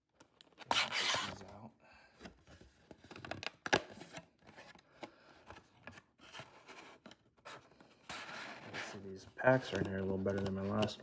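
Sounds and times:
cardboard rubbing and scraping: 0:00.6 - 0:01.5.

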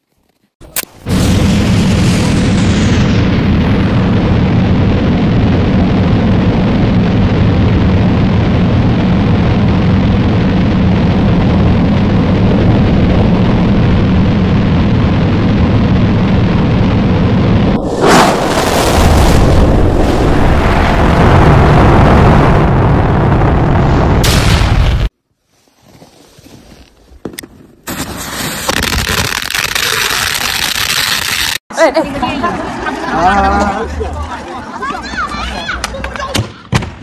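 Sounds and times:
firework rocket rushing hiss: 0:17.8 - 0:21.2, 0:27.9 - 0:31.6.

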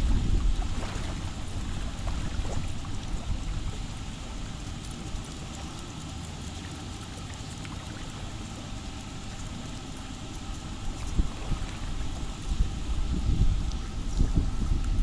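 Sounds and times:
wind buffeting microphone: 0:00.0 - 0:04.5, 0:10.8 - 0:15.0
steady outdoor hiss: 0:00.0 - 0:15.0.

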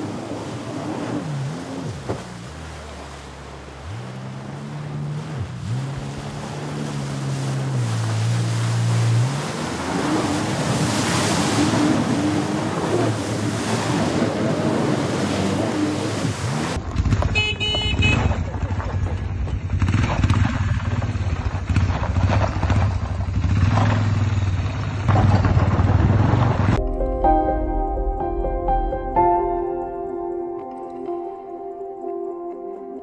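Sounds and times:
rushing water: 0:00.0 - 0:16.8
motorboat engine running: 0:00.0 - 0:27.0
wind on microphone: 0:05.6 - 0:17.1.

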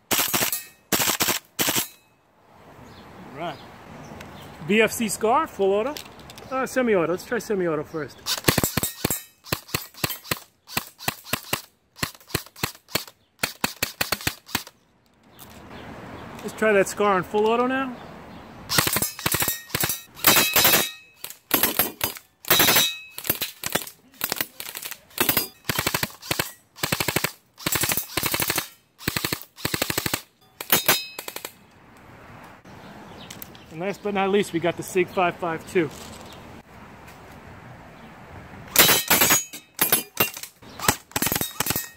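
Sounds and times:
airsoft rifle shots: 0:00.1 - 0:02.0, 0:08.2 - 0:14.7, 0:18.7 - 0:31.6.

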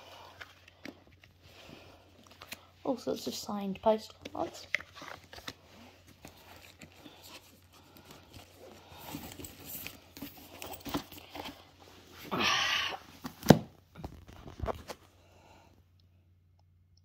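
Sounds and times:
book set down on wooden floor: 0:13.2 - 0:14.9.

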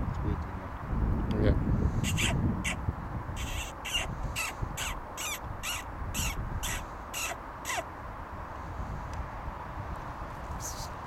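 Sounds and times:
animal giving harsh calls: 0:02.0 - 0:02.8, 0:03.4 - 0:07.9.

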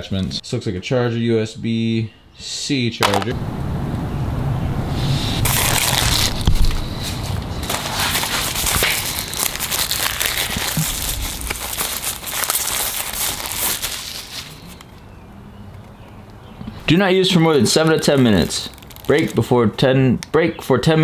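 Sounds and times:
plastic bag crinkling: 0:05.4 - 0:15.0, 0:17.3 - 0:19.5.

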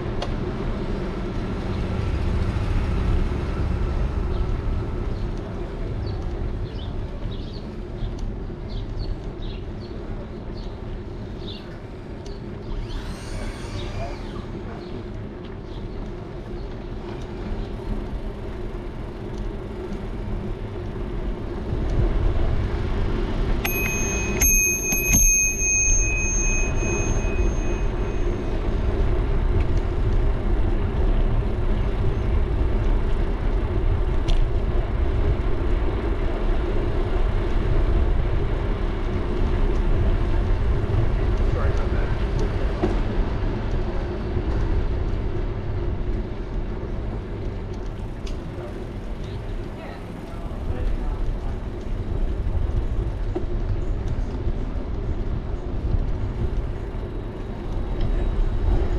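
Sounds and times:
rumble of wind and tyres: 0:00.0 - 0:58.9
bicycle bell ringing: 0:23.6 - 0:29.0.

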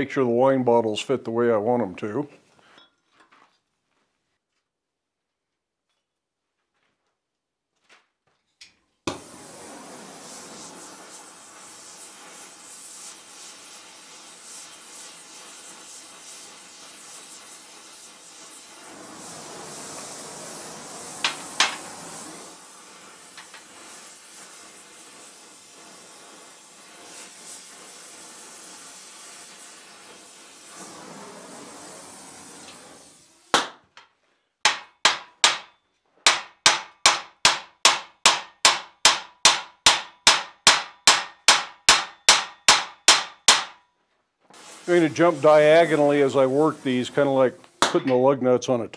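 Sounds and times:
torch flame hissing: 0:09.1 - 0:33.7, 0:44.5 - 0:48.3.

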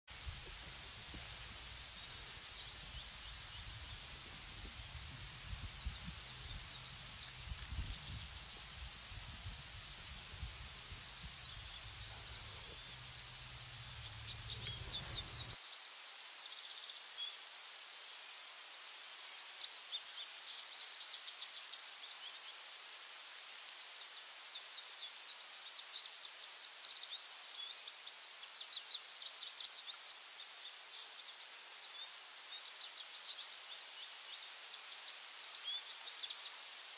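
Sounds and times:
wind rumble on microphone: 0:00.1 - 0:15.6
insects buzzing: 0:00.1 - 0:15.8
small birds chirping: 0:00.2 - 0:15.9.

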